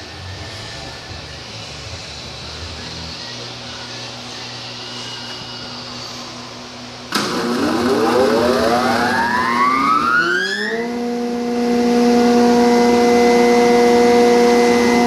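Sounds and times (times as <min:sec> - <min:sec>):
cutterhead whine rising in pitch: 0:00.0 - 0:15.0
machine hum: 0:00.0 - 0:15.0
motor starting clunk: 0:07.1 - 0:10.1.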